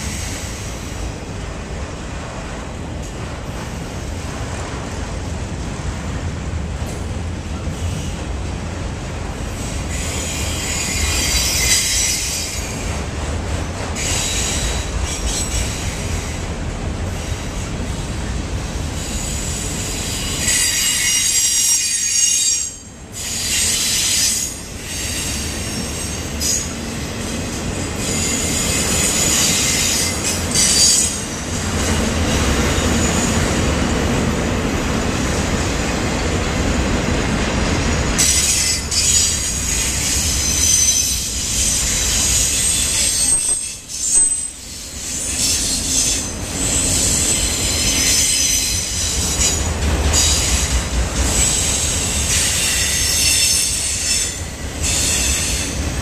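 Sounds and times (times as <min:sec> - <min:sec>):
freight wheels rumbling on rail: 0:00.0 - 0:56.0
high-pitched wheel squeal: 0:38.2 - 0:50.6.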